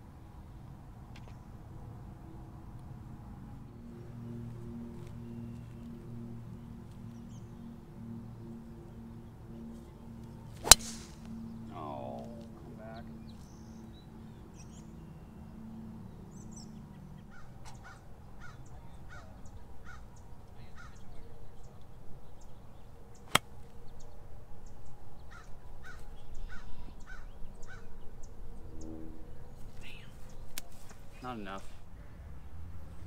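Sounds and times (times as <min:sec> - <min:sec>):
golf club striking ball: 0:10.6 - 0:11.4, 0:23.3 - 0:23.5.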